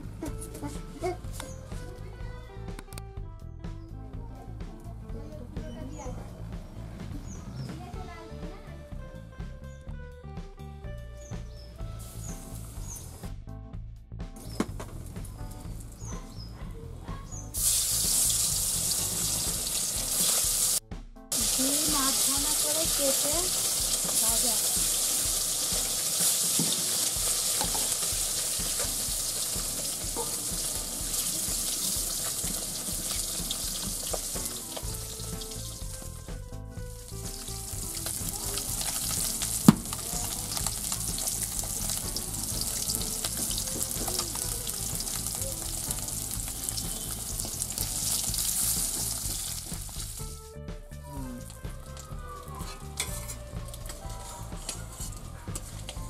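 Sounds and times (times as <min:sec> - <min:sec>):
eggs sizzling in hot oil: 0:11.8 - 0:13.3, 0:17.4 - 0:50.4.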